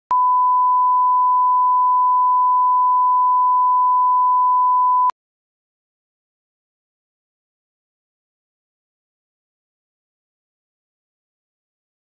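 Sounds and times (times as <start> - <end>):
sine test tone: 0.1 - 5.1.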